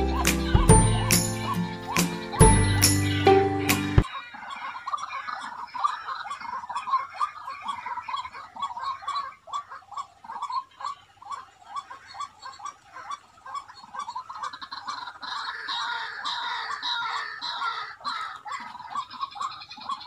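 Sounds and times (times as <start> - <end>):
short chirping calls: 0.0 - 5.8
high-pitched chirping chorus: 0.0 - 14.0.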